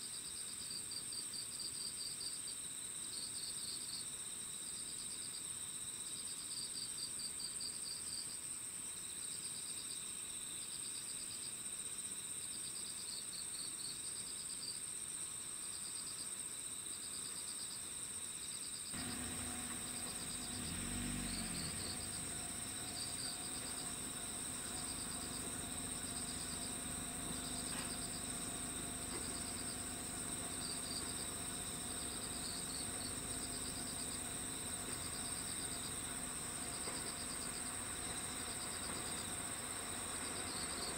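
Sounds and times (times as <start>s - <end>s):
crickets chirping in trills: 0.0s - 40.9s
high insect drone: 0.1s - 40.9s
diesel railcar humming: 19.0s - 40.9s.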